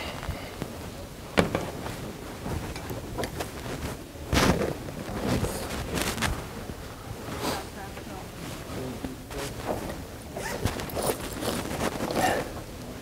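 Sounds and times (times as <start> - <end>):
rustling scuffle: 1.6 - 7.7, 8.4 - 12.6
bag being rummaged: 10.4 - 12.4.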